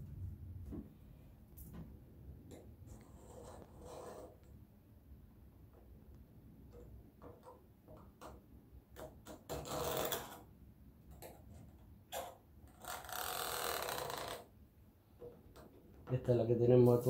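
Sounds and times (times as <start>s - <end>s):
scratchy drawing strokes: 2.8s - 4.5s.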